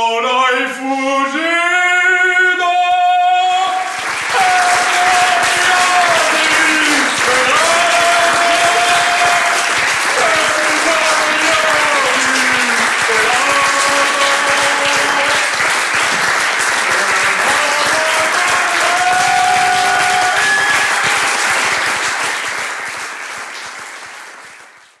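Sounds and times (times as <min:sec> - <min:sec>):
audience applauding: 0:03.5 - 0:25.0.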